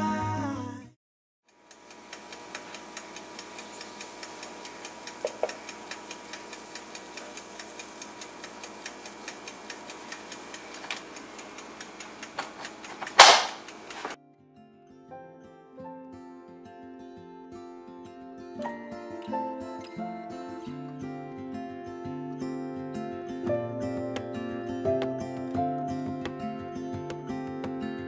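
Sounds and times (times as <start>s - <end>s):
steady ticking: 1.5s - 14.1s
waffle maker lid clacking shut: 12.4s - 14.1s.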